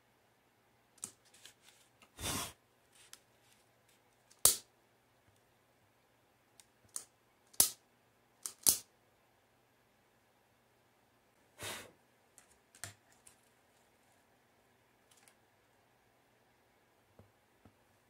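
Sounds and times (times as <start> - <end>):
paper rustle: 1.2 - 2.0.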